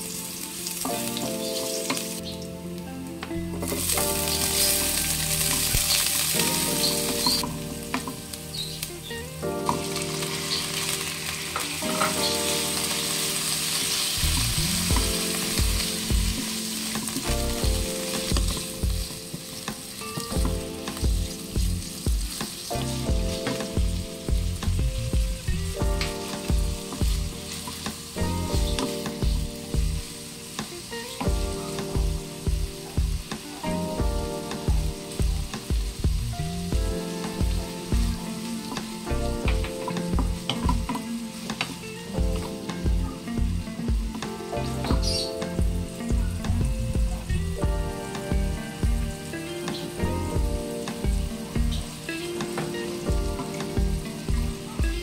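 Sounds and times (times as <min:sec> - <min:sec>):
food sizzling in a wok: 0:00.0 - 0:02.9, 0:03.6 - 0:55.0
rhythmic low thumps: 0:14.2 - 0:16.5, 0:17.2 - 0:19.2, 0:20.3 - 0:27.4, 0:28.2 - 0:30.1, 0:31.3 - 0:38.3, 0:39.1 - 0:41.1, 0:42.2 - 0:49.2, 0:50.0 - 0:52.0, 0:53.1 - 0:55.0.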